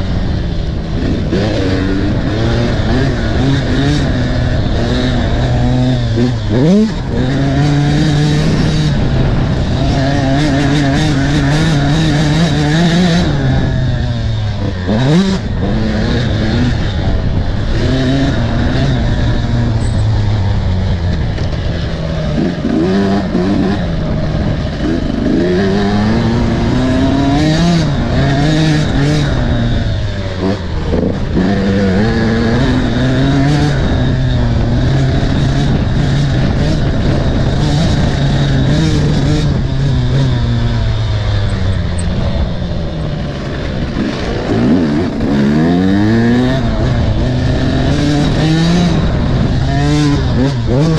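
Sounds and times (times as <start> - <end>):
motorcycle engine revving: 0.0 - 50.9
wind rushing over microphone: 0.0 - 50.9.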